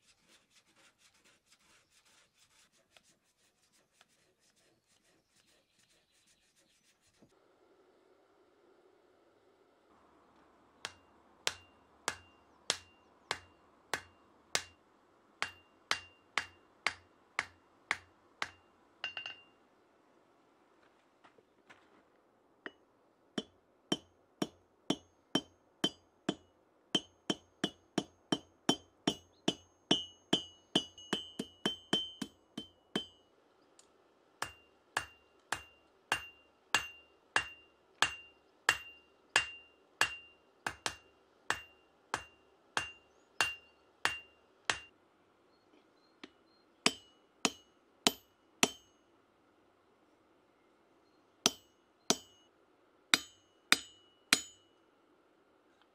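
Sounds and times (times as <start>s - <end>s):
hammer striking metal on anvil: 10.8s - 14.8s, 15.4s - 19.5s, 23.4s - 26.4s, 27.0s - 33.2s, 34.4s - 44.9s, 46.9s - 49.0s, 51.5s - 52.5s, 53.1s - 54.8s.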